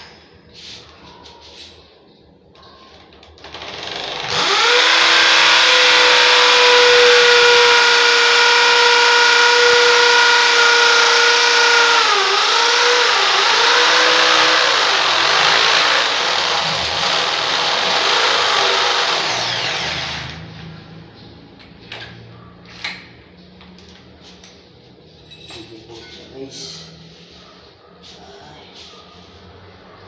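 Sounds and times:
power drill whining: 3.4 - 20.4.

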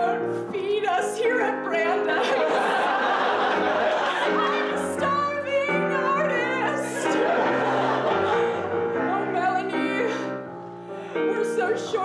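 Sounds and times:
woman singing: 0.0 - 2.4, 4.6 - 7.6, 9.0 - 10.4, 11.2 - 12.0
keyboard chords: 0.0 - 12.0.

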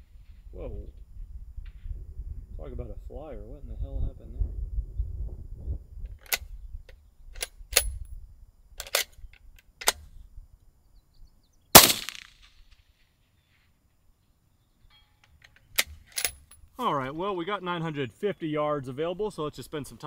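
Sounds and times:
rifle bolt clicks: 6.1 - 6.5, 8.8 - 10.0, 15.2 - 16.5
suppressed rifle shot: 11.8 - 12.7.

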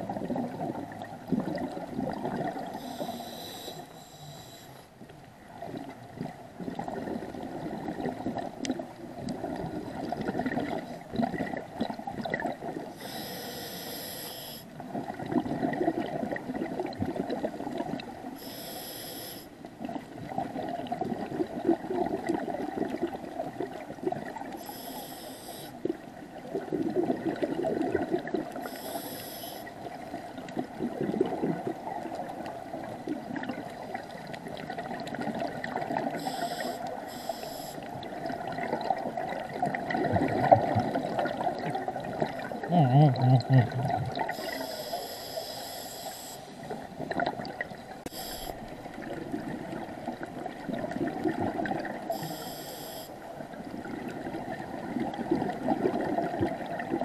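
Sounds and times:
hissing regulator inhalations: 2.8 - 4.9, 13.0 - 14.7, 18.4 - 19.5, 24.6 - 25.8, 28.6 - 29.7, 36.2 - 37.8, 44.4 - 46.6, 48.1 - 48.6, 52.1 - 53.2
bubbling exhalation: 42.3 - 44.4.

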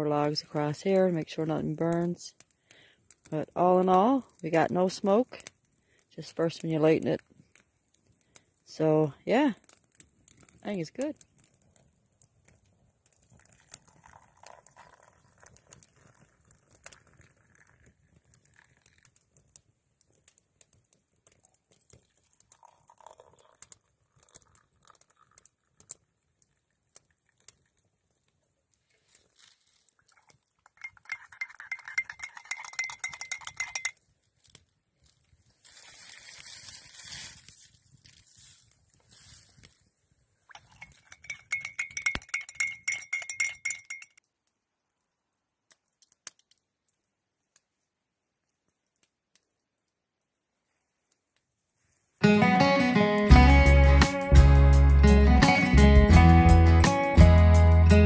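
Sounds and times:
tea pouring: 12.4 - 19.6, 21.3 - 27.9, 29.1 - 34.0, 35.6 - 38.6, 40.5 - 44.1
tin can and mugs clattering: 30.8 - 33.9
spoon clinking in a mug: 30.8 - 34.0, 40.5 - 44.2.

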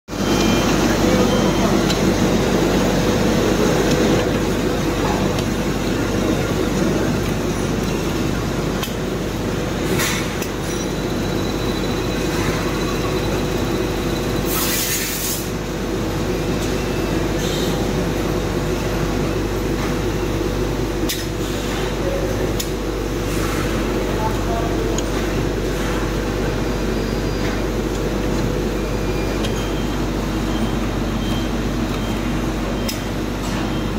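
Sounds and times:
pneumatic hiss: 14.4 - 15.6.

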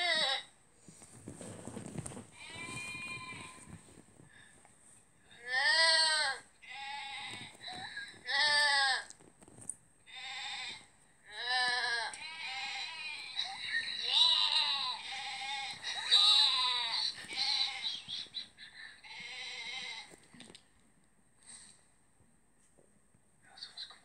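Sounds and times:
goats bleating: 10.1 - 18.2.

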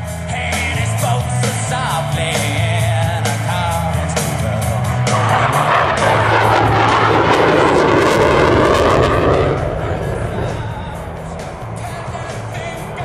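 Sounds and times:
rock music with singing: 0.0 - 13.0.

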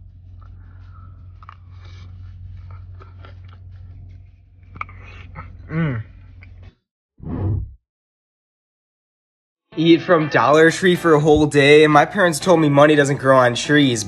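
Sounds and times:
low hum inside a car: 0.0 - 6.7
chewing and lip smacks: 1.2 - 5.7
person humming mmm: 4.8 - 6.2.

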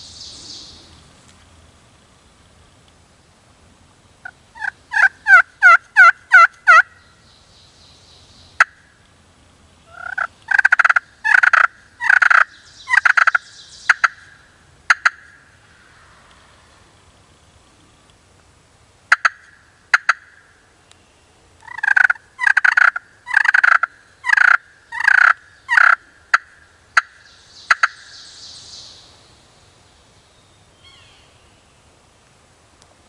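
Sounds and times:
turkey gobbling: 4.6 - 6.9, 9.9 - 14.2, 14.9 - 15.3, 19.1 - 20.3, 21.7 - 28.0.

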